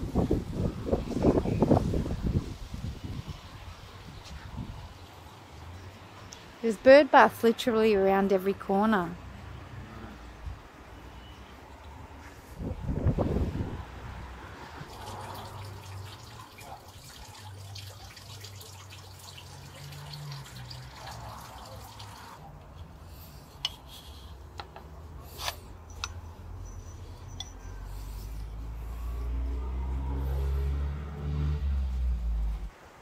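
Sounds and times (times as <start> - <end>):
water dripping and trickling: 14.7 - 24.3.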